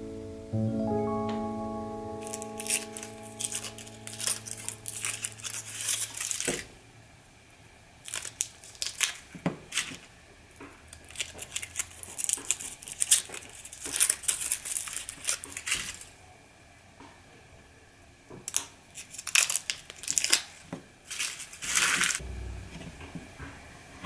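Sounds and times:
foil wrappers crinkling and tearing: 0:02.3 - 0:06.7, 0:08.0 - 0:10.1, 0:10.9 - 0:16.2, 0:18.5 - 0:22.2.

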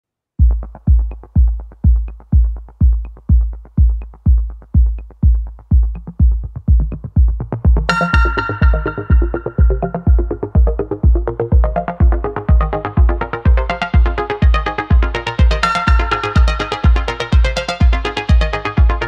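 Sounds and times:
kick drum beat: 0:00.4 - 0:19.0
bright synthesizer chord: 0:07.9 - 0:19.0.

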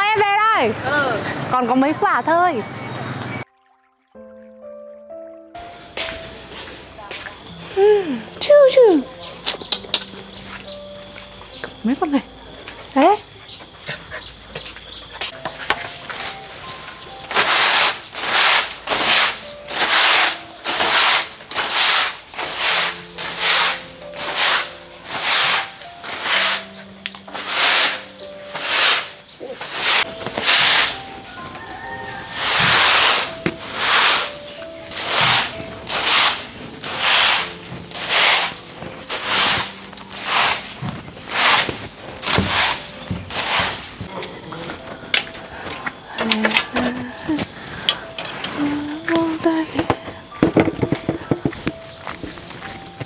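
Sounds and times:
broom sweeping concrete floor: 0:15.2 - 0:44.1.

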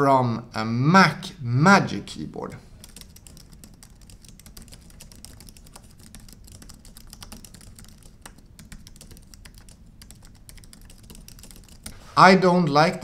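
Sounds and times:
keyboard typing clicks: 0:02.8 - 0:11.9.

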